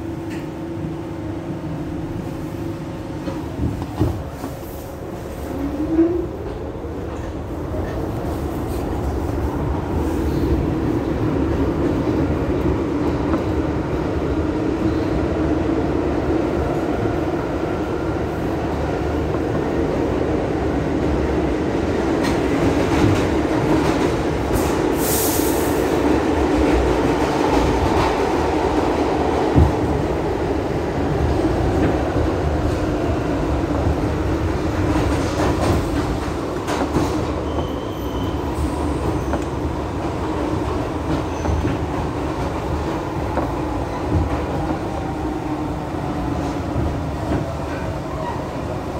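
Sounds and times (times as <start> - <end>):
subway car running: 0.0 - 48.9
wheel squeal: 37.4 - 38.6.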